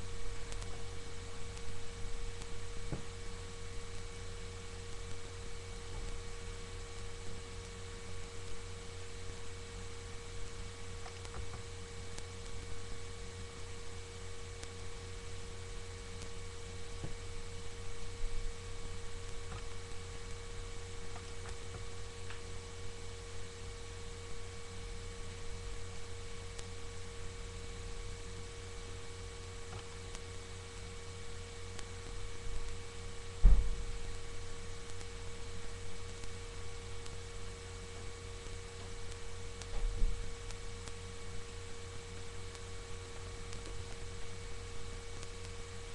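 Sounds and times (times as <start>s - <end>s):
electrical hum with whine: 0.0s - 45.9s
dull thump: 33.4s - 33.8s.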